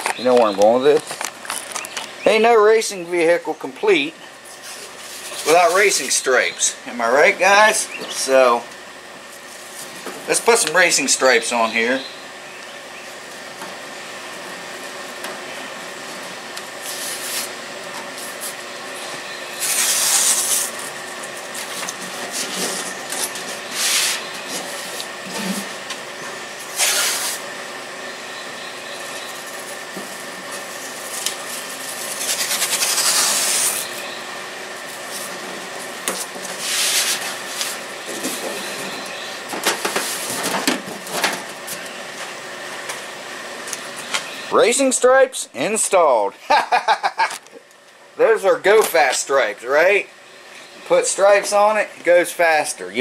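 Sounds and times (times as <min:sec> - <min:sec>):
tape rubbed on hood: 0:16.8 - 0:18.6, 0:19.6 - 0:21.0, 0:23.7 - 0:25.7, 0:26.6 - 0:27.5, 0:30.6 - 0:34.0, 0:36.2 - 0:38.7
tape ripping off roll: 0:19.6 - 0:20.8, 0:26.7 - 0:27.4, 0:32.0 - 0:33.9.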